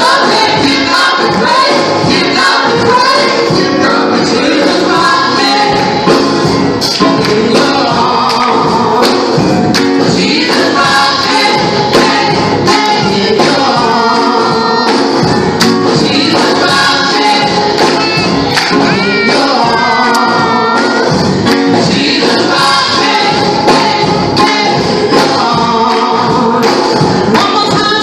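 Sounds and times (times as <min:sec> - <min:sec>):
drums: 0:00.0 - 0:28.0
group singing gospel: 0:00.0 - 0:28.0
keyboard: 0:00.0 - 0:28.0.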